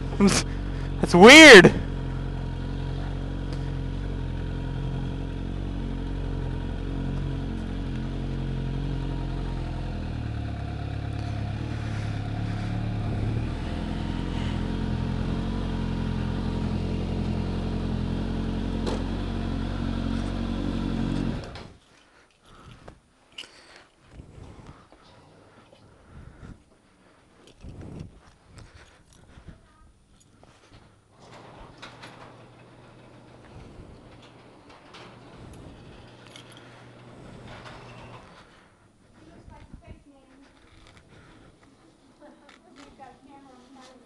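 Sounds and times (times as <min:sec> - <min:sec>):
motorcycle engine running: 0:00.0 - 0:21.8.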